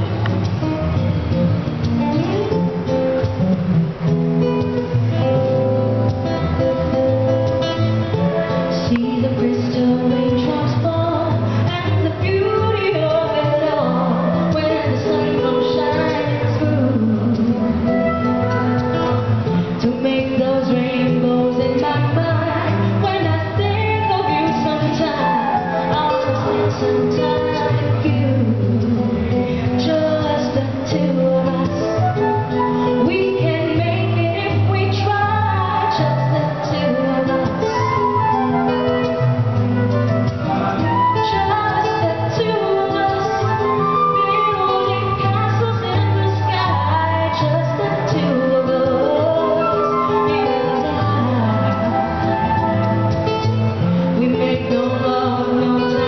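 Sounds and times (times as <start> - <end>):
guitar: 0.0 - 56.0
woman singing: 7.5 - 39.6, 40.5 - 56.0.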